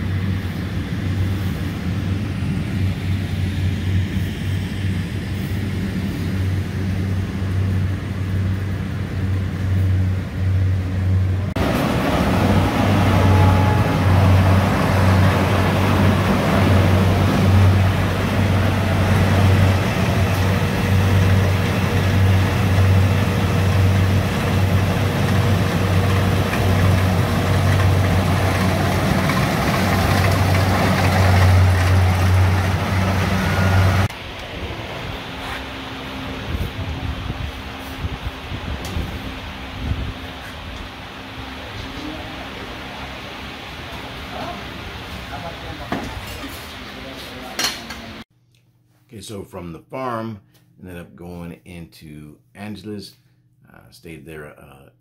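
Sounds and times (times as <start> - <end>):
combine harvester diesel engine: 0.0 - 48.2
harvester rushing noise: 0.1 - 47.2.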